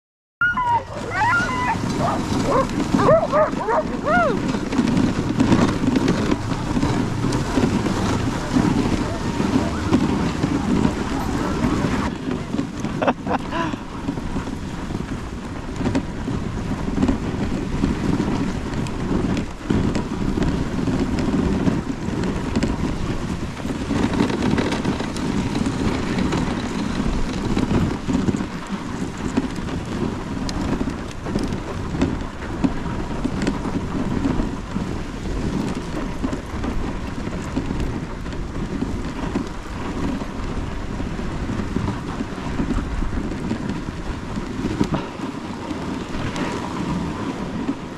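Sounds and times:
sled runners scraping snow: 0:00.4 - 0:47.9
wind on microphone: 0:00.4 - 0:47.9.

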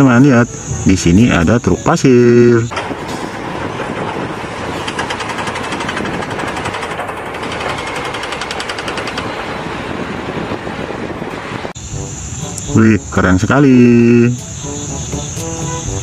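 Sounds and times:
diesel truck engine running: 0:00.4 - 0:13.4
fast even clatter: 0:02.7 - 0:11.7.

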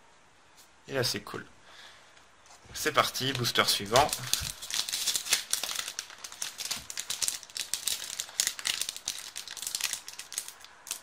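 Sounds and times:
foil wrapper crinkling and tearing: 0:03.1 - 0:11.0.

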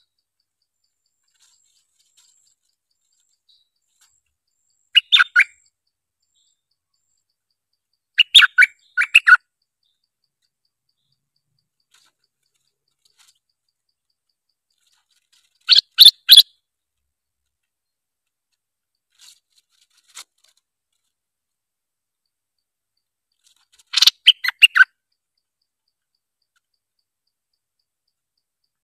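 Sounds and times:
bird chirping calls: 0:00.0 - 0:16.6, 0:23.3 - 0:25.5.

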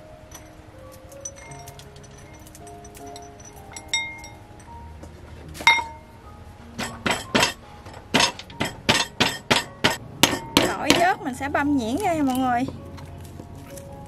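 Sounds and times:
pestle clinking on bowl: 0:01.2 - 0:04.7, 0:06.8 - 0:07.6, 0:08.2 - 0:11.4
pestle pounding peppercorns: 0:06.8 - 0:11.4.

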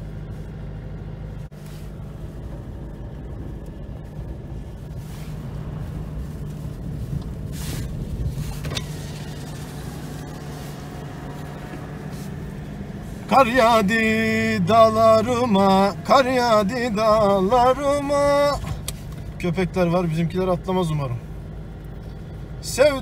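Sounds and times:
car engine and tyre drone: 0:00.0 - 0:23.0
tyres hissing on wet road: 0:04.8 - 0:13.4.

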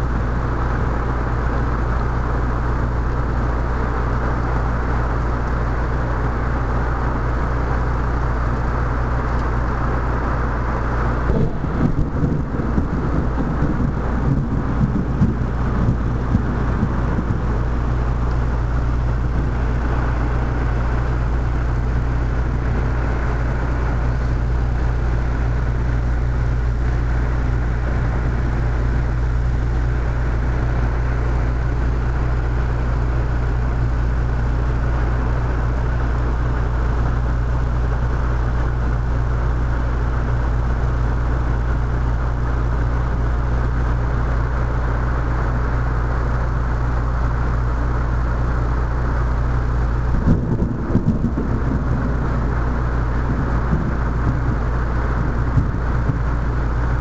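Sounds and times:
constant low hum: 0:00.0 - 0:57.0
heavy rain pouring: 0:00.0 - 0:57.0
thunder rumbling: 0:10.4 - 0:36.6, 0:49.8 - 0:57.0.

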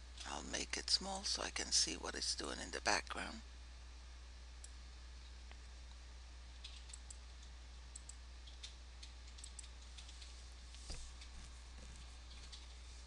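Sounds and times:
steady low hum: 0:00.0 - 0:13.0
computer mouse clicks: 0:06.6 - 0:10.3.

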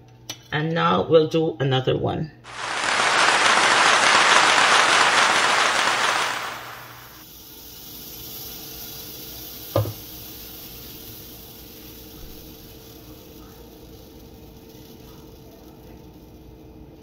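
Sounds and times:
batter sizzling in a pan: 0:06.2 - 0:17.0.

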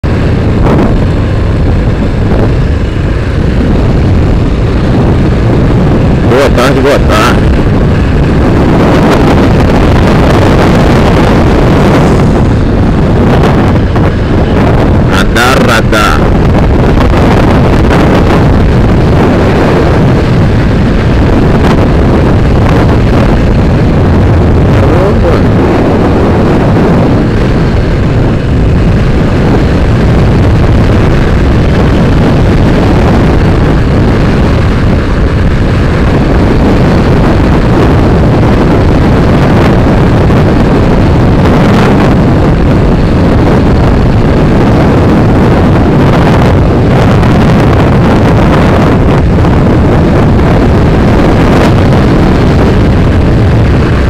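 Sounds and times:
motorcycle engine: 0:00.0 - 0:54.0
wind buffeting microphone: 0:00.0 - 0:54.0.

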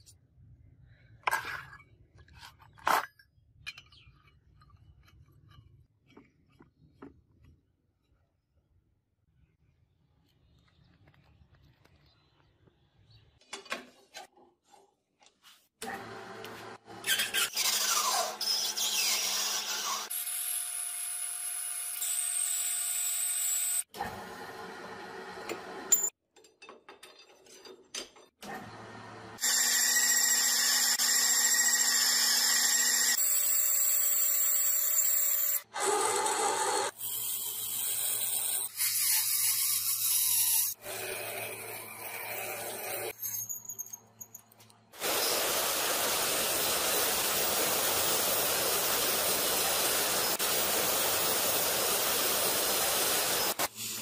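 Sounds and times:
drill boring into metal rod: 0:29.4 - 0:36.9.

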